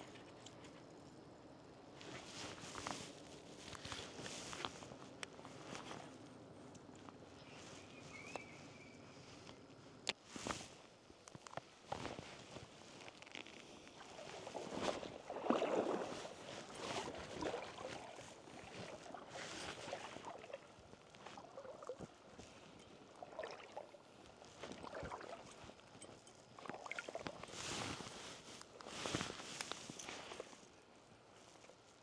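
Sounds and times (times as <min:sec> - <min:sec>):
water sloshing around legs: 0:13.2 - 0:28.1.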